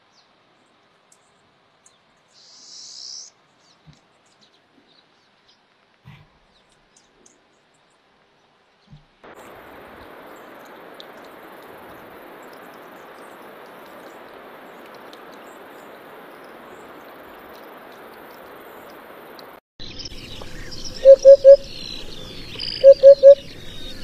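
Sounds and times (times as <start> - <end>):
faint steady hiss: 0.0 - 24.0
high bird chirps: 19.8 - 24.0
hoopoe low three-note call: 21.0 - 21.7, 22.8 - 23.4.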